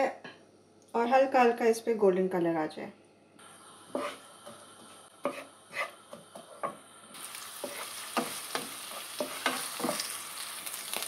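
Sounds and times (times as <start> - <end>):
onion sizzling in oil: 3.4 - 11.0
wooden spoon scraping a pan: 3.9 - 10.3.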